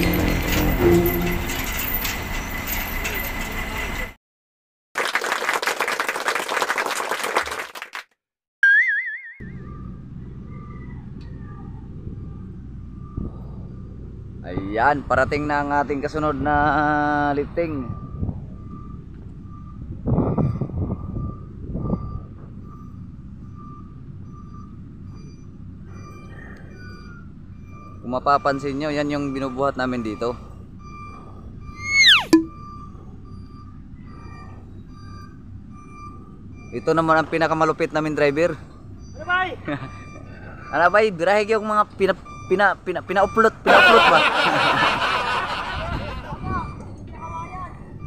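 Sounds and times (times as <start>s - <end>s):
diesel engine running: 0.0s - 4.1s
truck reversing alarm beeping: 0.0s - 4.2s, 8.7s - 48.0s.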